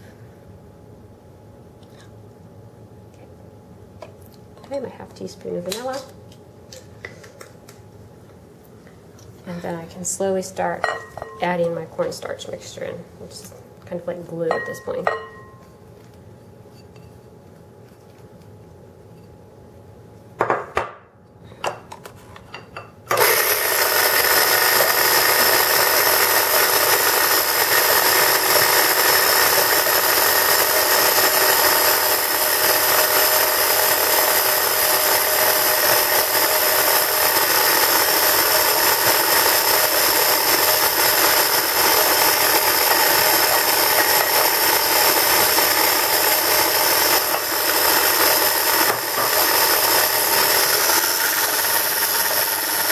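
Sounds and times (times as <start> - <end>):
stand mixer whining: 23.1 - 52.9.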